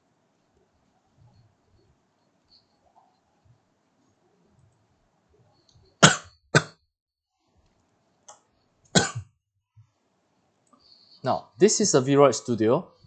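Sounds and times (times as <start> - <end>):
man coughing: 9.0 - 9.3.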